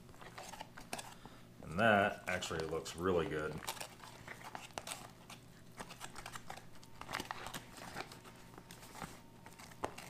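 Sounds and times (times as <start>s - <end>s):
pouch crinkling: 2.4s - 10.0s.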